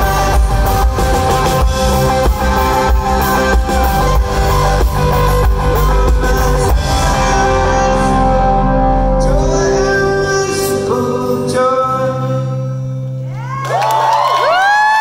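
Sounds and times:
drums: 0.0 - 11.6
electric guitar chords: 0.0 - 13.5
audience cheering and whooping: 13.3 - 15.0.

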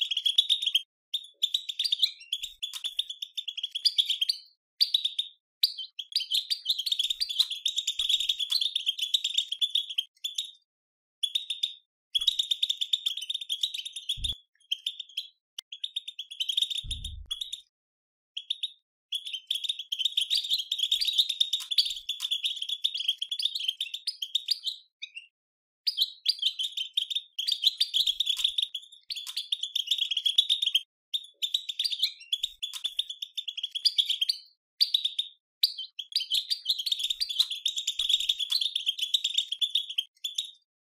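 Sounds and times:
faint low thumps: 16.9 - 17.4.

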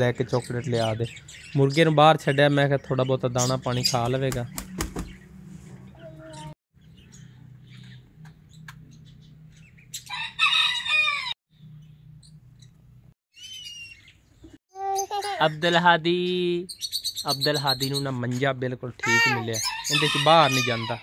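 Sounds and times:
rooster crowing: 10.1 - 11.4
small bird chirping: 11.6 - 18.3.

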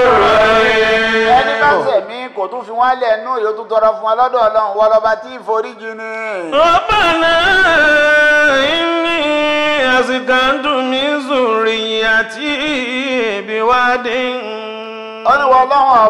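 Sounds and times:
man chanting: 0.0 - 16.0.

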